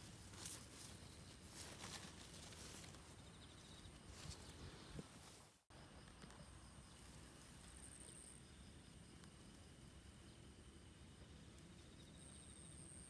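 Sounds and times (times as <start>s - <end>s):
faint garden ambience: 0.0s - 13.0s.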